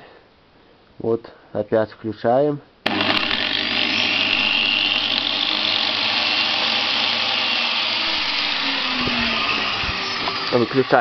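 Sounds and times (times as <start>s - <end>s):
angle grinder whining: 2.8s - 11.0s.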